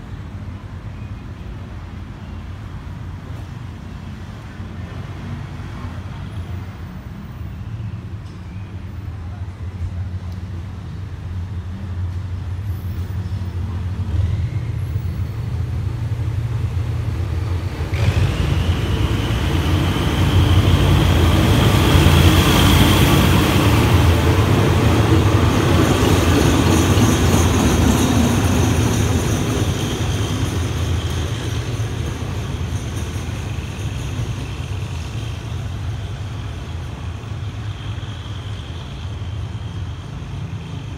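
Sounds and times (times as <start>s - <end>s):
diesel locomotive engine drone: 0.0s - 40.9s.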